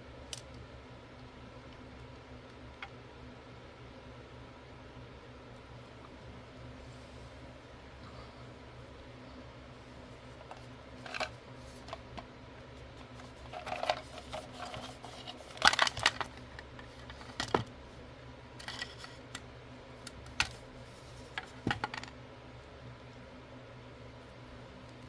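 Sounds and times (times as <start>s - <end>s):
plastic toys clicking and rattling: 10.4s - 12.0s, 13.0s - 17.7s, 18.6s - 19.4s.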